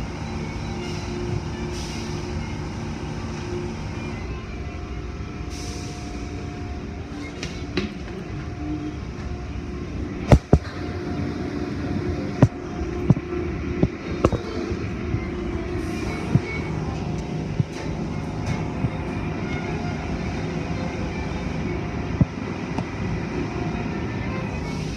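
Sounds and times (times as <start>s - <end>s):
car wash motors and water spray: 0.0s - 24.9s.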